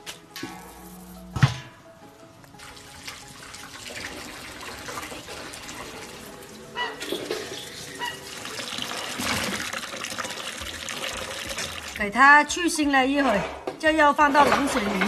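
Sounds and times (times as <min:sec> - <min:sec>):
faint background music: 0:00.0 - 0:15.0
water boiling in a pot: 0:02.6 - 0:12.5.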